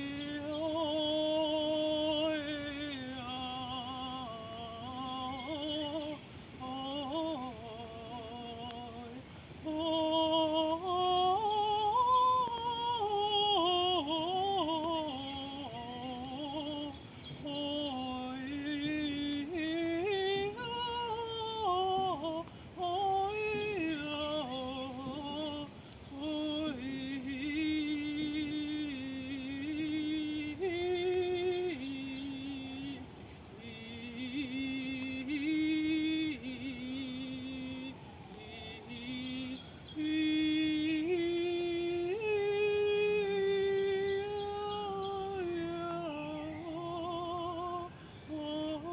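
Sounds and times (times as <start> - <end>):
woman singing wordlessly: 0.0 - 48.9
breaths: 9.2 - 9.6, 22.5 - 22.8, 25.7 - 26.1, 33.1 - 33.6, 47.9 - 48.3.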